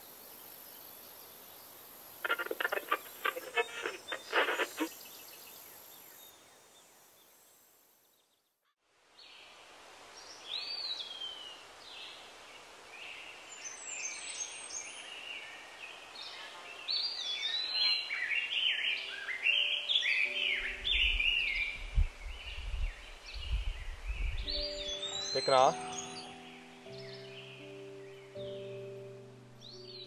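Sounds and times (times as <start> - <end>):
steady background hiss: 0.0 - 8.2, 8.9 - 30.0
birds singing: 0.6 - 6.7, 13.0 - 30.0.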